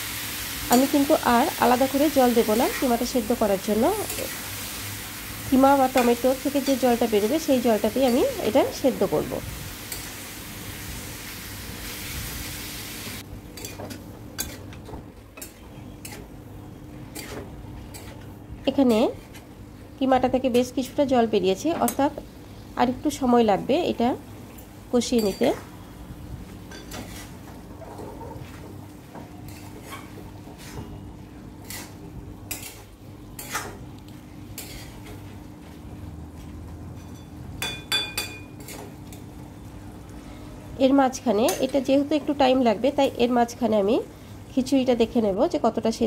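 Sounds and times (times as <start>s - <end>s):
food sizzling in a pan: 0.0s - 13.8s.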